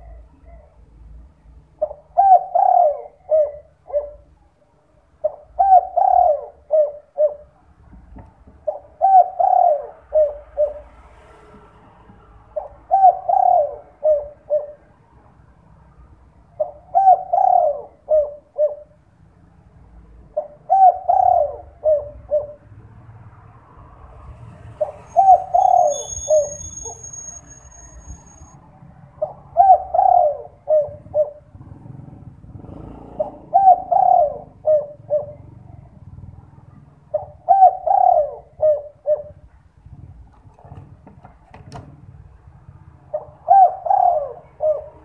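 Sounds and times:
dove cooing: 0:01.8 - 0:04.4, 0:05.2 - 0:07.6, 0:08.6 - 0:10.9, 0:12.6 - 0:15.0, 0:16.6 - 0:19.0, 0:20.3 - 0:22.8, 0:24.8 - 0:27.1, 0:29.2 - 0:39.6, 0:43.1 - 0:45.0.

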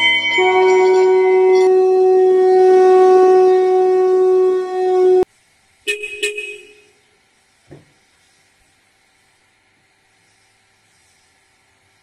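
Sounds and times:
ringing strikes: 0:00.0 - 0:02.4
conch shell blown: 0:00.0 - 0:05.3.

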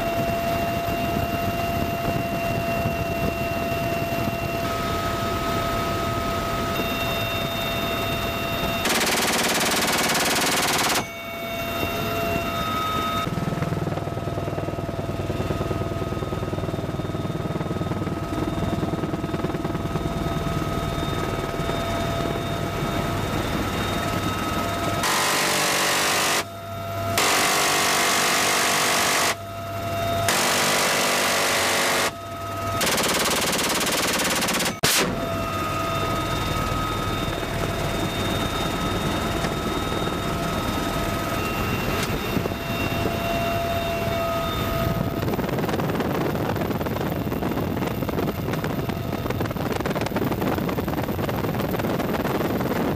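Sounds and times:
helicopter rotor and turbine whine: 0:00.0 - 0:52.9
minigun firing bursts: 0:08.8 - 0:11.0, 0:25.0 - 0:26.5, 0:27.2 - 0:29.4, 0:30.3 - 0:32.1, 0:32.8 - 0:35.1.

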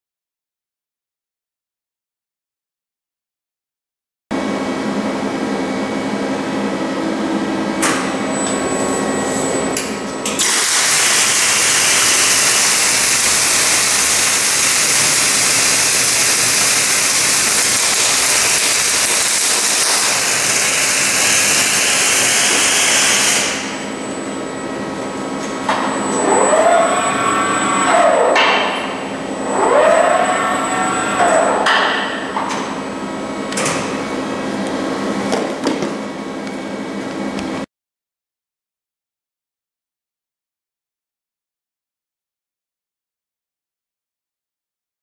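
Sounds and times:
machine hum: 0:04.3 - 0:37.7
welding arc hissing and crackling: 0:10.4 - 0:23.8.

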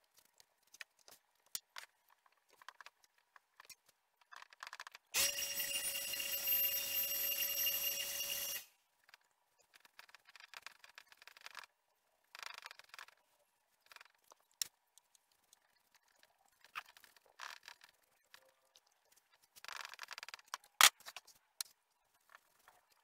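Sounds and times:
loud steady tone: 0:05.2 - 0:08.7.

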